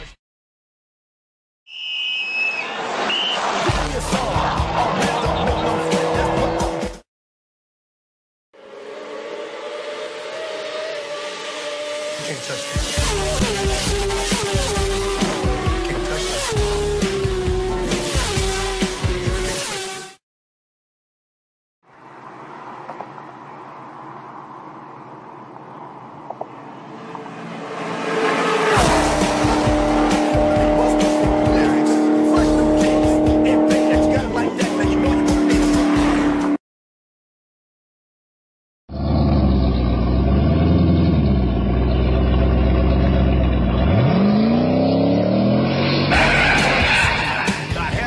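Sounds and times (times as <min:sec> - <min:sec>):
car engine revving: 0:03.7 - 0:07.0, 0:08.6 - 0:20.2, 0:25.8 - 0:36.6, 0:38.9 - 0:48.0
road and wind noise in car: 0:21.8 - 0:34.4.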